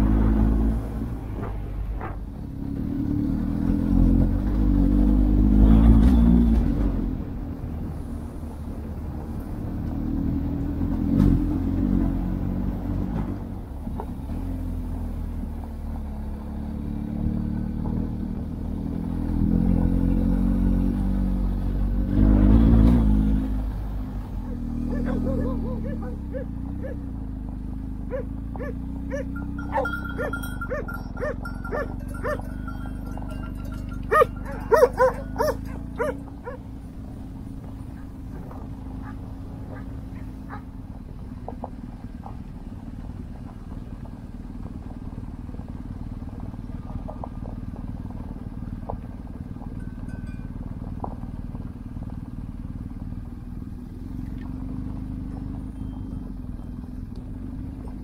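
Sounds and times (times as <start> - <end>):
vehicle engine rumbling: 0.0 - 58.0
dog barking: 24.4 - 27.0, 28.1 - 32.6, 34.1 - 36.6.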